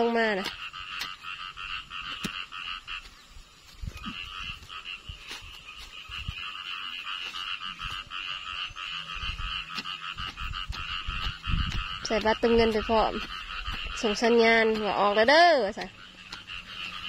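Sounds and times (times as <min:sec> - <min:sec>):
frogs trilling: 0:00.0 - 0:17.0
dull low thumps: 0:09.1 - 0:14.9.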